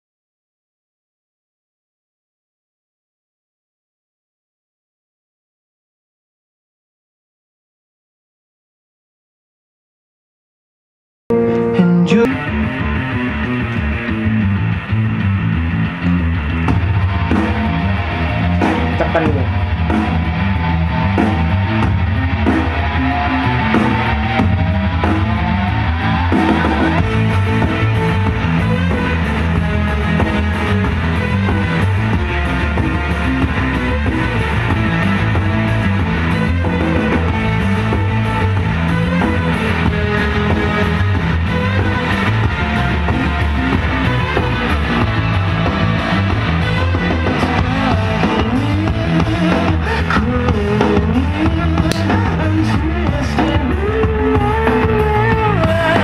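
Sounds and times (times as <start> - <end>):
rock music with guitar and drums: 11.3 - 56.0.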